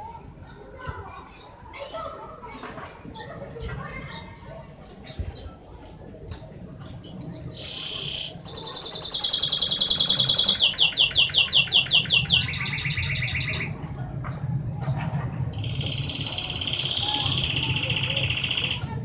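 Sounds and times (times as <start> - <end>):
canary singing trills: 6.8 - 13.8, 15.6 - 18.9.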